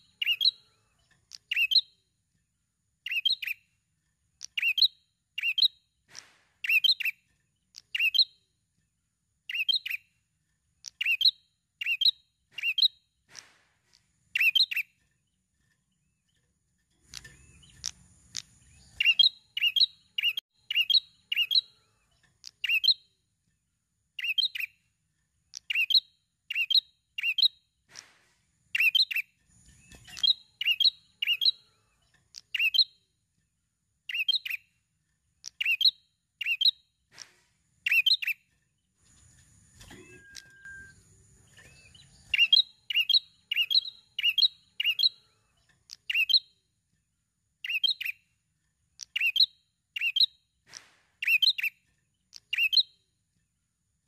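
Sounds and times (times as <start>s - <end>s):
bird chirping: 0.0s - 54.0s.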